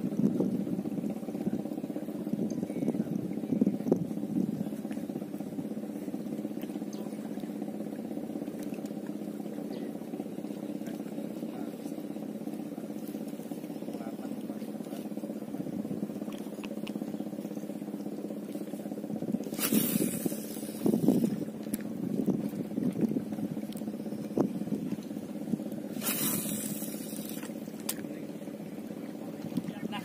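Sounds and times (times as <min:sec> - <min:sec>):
boat engine droning: 0:00.0 - 0:30.0
rushing noise on microphone: 0:19.4 - 0:23.3.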